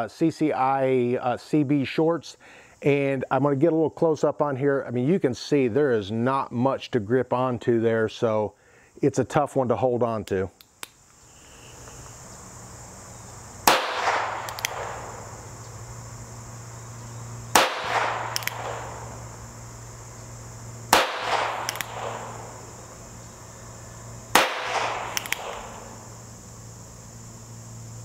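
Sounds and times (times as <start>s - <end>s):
quiet revolver clicks: 10.6s - 11.2s, 13.6s - 15.7s, 17.5s - 19.4s, 20.9s - 22.8s, 24.3s - 26.0s
revolver shots: 17.5s - 19.4s, 20.8s - 22.8s, 24.3s - 26.1s.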